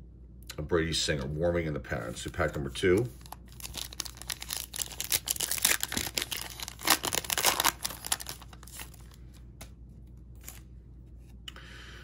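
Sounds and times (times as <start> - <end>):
foil wrapper crinkling and tearing: 2.4 - 9.2.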